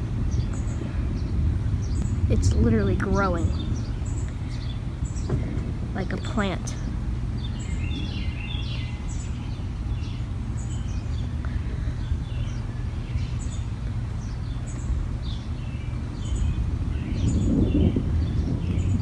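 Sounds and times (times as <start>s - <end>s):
distant thunder rumbling: 0.0s - 10.5s, 15.9s - 19.0s
low background rumble: 0.0s - 19.0s
songbirds chirping: 0.0s - 19.0s.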